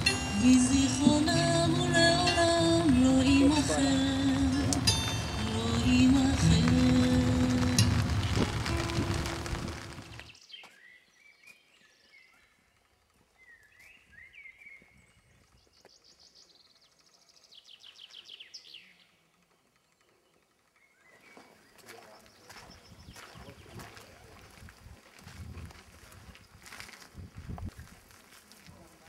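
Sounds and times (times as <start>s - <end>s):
songbirds singing: 0.0s - 24.0s
outdoor ambience: 0.0s - 29.0s.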